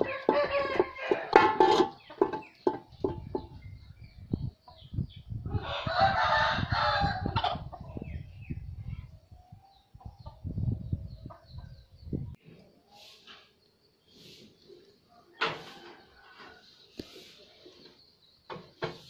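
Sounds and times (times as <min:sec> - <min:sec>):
rooster crowing: 0:00.0 - 0:01.4, 0:05.5 - 0:07.3.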